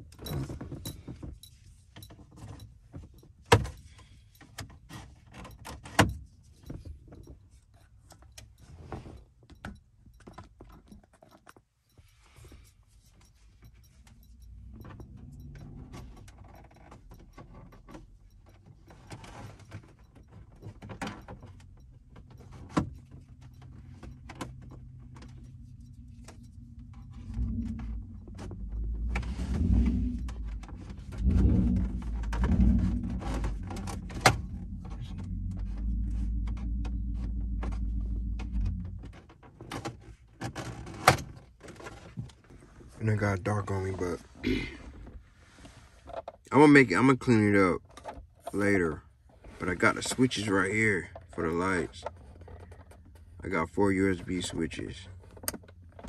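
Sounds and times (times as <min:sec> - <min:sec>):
keys jingling: 0:00.0 - 0:04.6
low rumble: 0:23.7 - 0:39.3.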